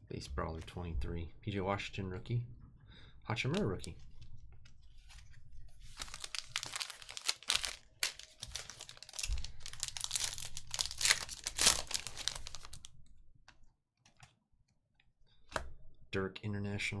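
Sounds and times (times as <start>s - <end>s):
foil wrapper crinkling: 5.8s - 12.9s.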